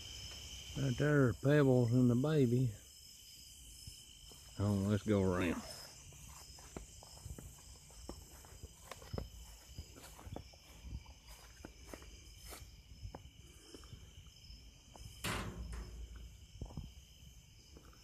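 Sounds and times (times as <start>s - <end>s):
crickets and insects singing: 0.0s - 18.0s
footsteps: 4.2s - 13.3s, 14.9s - 17.0s.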